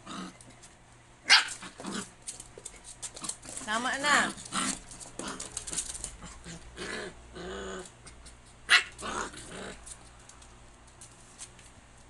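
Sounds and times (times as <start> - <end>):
dogs growling and whining: 0.0 - 0.6, 1.5 - 2.2, 4.2 - 10.0
dog yipping: 1.3 - 1.6.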